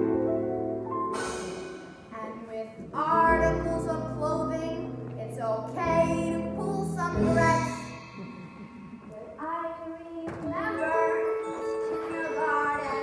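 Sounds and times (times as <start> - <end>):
young woman singing: 2.2 - 7.8, 9.2 - 13.0.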